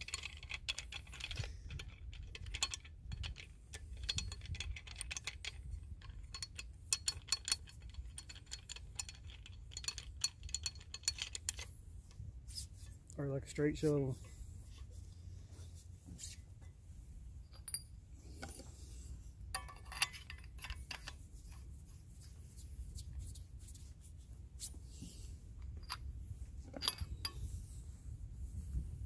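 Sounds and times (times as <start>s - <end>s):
metallic clicks and clinks: 0.0s - 12.2s, 17.4s - 18.6s, 19.5s - 21.7s, 25.6s - 26.1s, 26.7s - 27.5s
low steady rumble: 0.0s - 29.0s.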